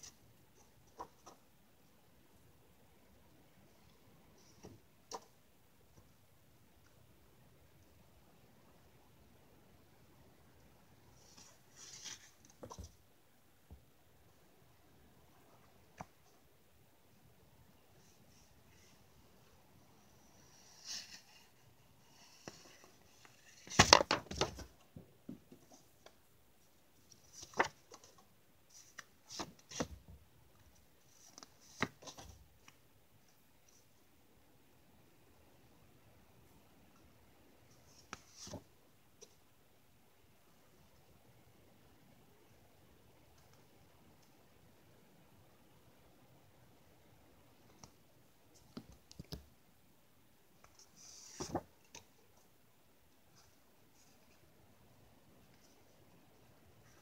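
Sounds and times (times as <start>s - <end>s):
paper cards flicking and rustling: 23.3s - 24.7s
paper rustle: 50.7s - 52.0s.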